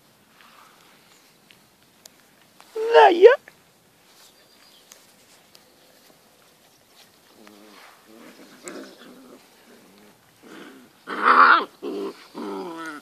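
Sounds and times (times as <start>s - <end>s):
puppies play-growling: 7.3s - 13.0s.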